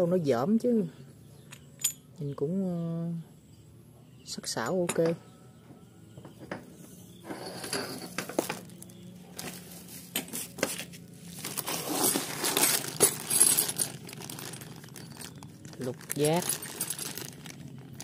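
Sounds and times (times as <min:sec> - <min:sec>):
metal tools clinking: 0:01.4 - 0:02.1, 0:07.2 - 0:09.6, 0:11.3 - 0:18.0
plastic bag crinkling: 0:11.2 - 0:18.0.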